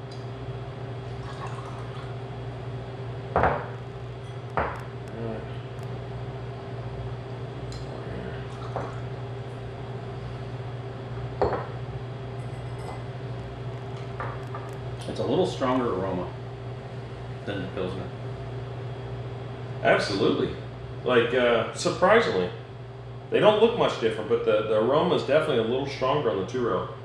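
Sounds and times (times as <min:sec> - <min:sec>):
steady low hum: 0:00.0 - 0:27.0
liquid trickling and dripping: 0:01.1 - 0:02.2.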